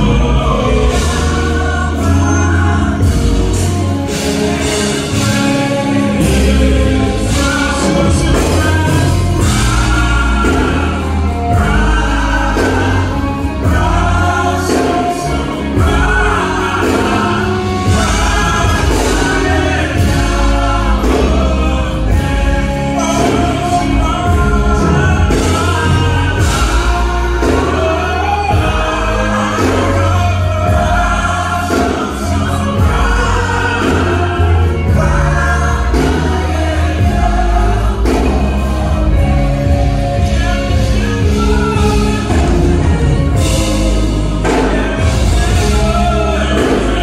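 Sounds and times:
choir singing: 0.0s - 47.0s
instrumental accompaniment: 0.0s - 47.0s
men singing gospel: 0.0s - 47.0s.

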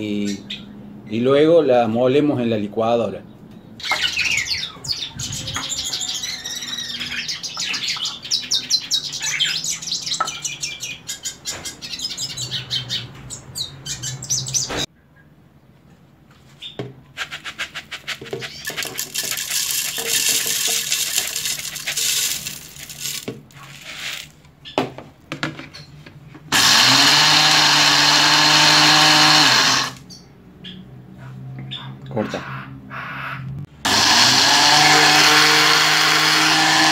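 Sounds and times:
small birds chirping: 0.0s - 1.3s, 3.2s - 15.4s, 18.3s - 23.2s, 30.0s - 33.4s
eggshells rattling into plastic jug: 18.0s - 24.4s
electric blender running: 26.5s - 30.0s, 33.8s - 36.9s.

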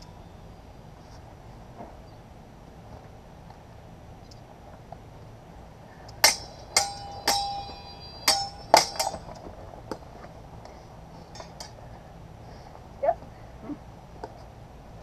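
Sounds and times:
sword blades clashing: 6.2s - 9.5s.

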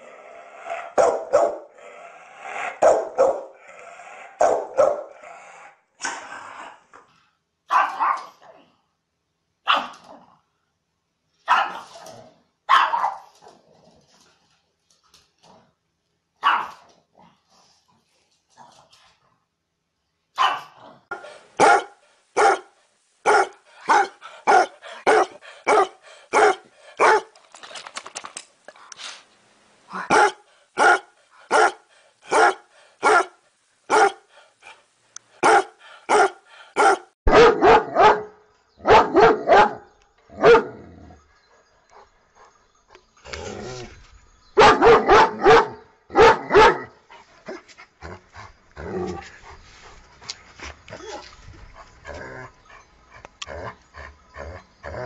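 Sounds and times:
heavier dog barks: 0.8s - 1.8s, 2.7s - 3.6s, 4.4s - 5.2s, 7.7s - 8.4s, 12.7s - 13.3s, 16.4s - 16.8s, 20.4s - 27.3s, 30.1s - 34.8s, 35.4s - 40.8s, 44.6s - 46.9s
dogs barking: 1.0s - 1.7s, 2.7s - 3.6s, 4.4s - 5.2s, 7.7s - 8.3s, 11.5s - 11.9s, 12.7s - 13.3s, 16.4s - 16.8s, 20.4s - 27.3s, 30.1s - 34.3s, 35.4s - 40.7s, 44.6s - 46.9s.

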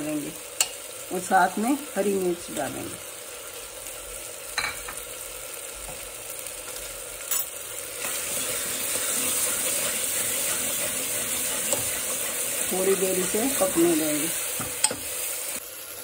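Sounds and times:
vegetables sizzling in hot ghee: 0.0s - 16.0s.

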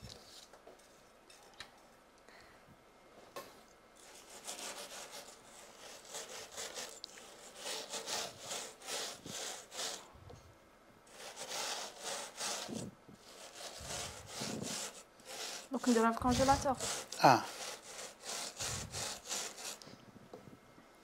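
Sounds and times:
spatula scraping crunchy crumbs: 4.0s - 10.0s, 11.1s - 19.8s.

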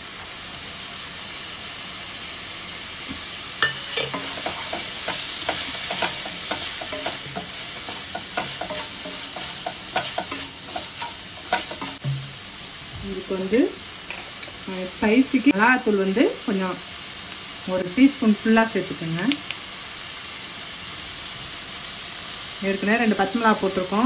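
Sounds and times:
masala sizzling in a pan: 0.0s - 24.0s
wooden spatula scraping a pan: 3.6s - 12.4s.

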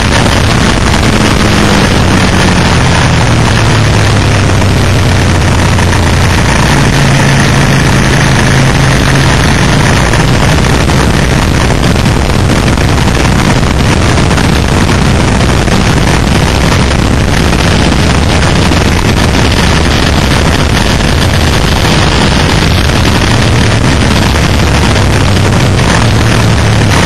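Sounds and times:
heavy wind rush: 0.0s - 27.0s
motorcycle engine running: 0.0s - 27.0s.

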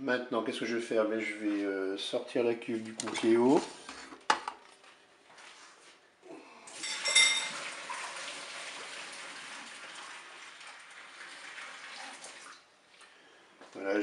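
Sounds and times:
water pouring and splashing: 6.7s - 13.2s
metal bowl ringing: 6.8s - 7.6s.

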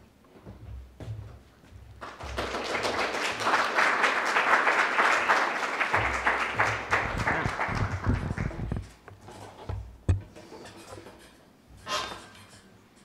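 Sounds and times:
audience clapping: 2.0s - 8.9s
low thumps: 6.0s - 9.0s.

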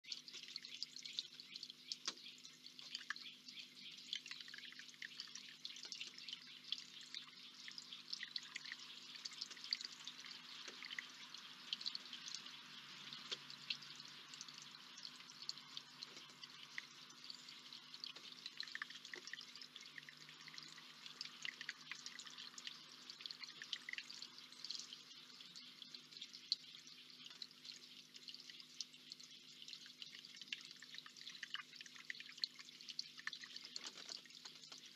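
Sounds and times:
water trickling into a basin: 0.0s - 34.9s.

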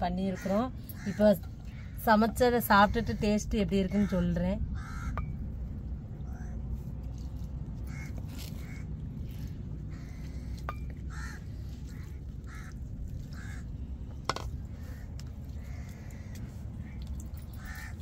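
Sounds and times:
crows cawing: 0.2s - 2.0s, 3.9s - 5.5s, 6.2s - 6.6s, 7.8s - 18.0s.

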